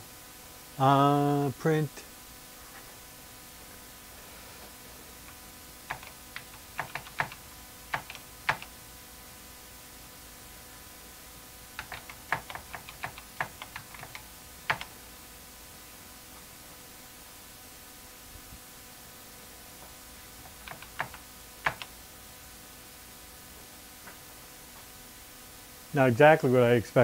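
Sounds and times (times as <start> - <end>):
faint steady hum: 0.0 - 27.0
keyboard keys clicking: 5.9 - 8.7, 11.8 - 14.9, 20.5 - 21.9.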